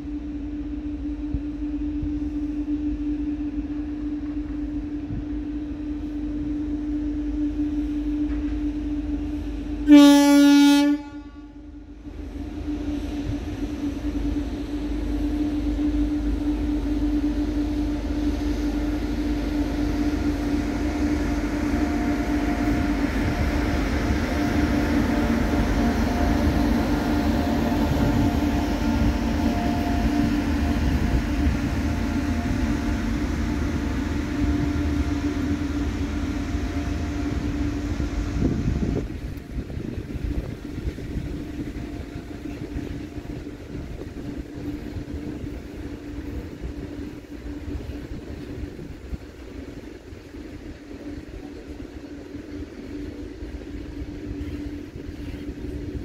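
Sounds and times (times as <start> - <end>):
low locomotive hum: 0.0 - 56.0
train wheels rumbling on rails: 0.0 - 56.0
locomotive horn blast: 9.8 - 11.6, 19.0 - 39.6.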